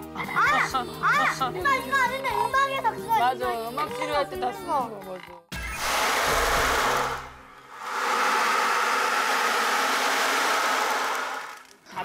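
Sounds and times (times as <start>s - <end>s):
ocean drum beads rolling: 5.8s - 11.7s.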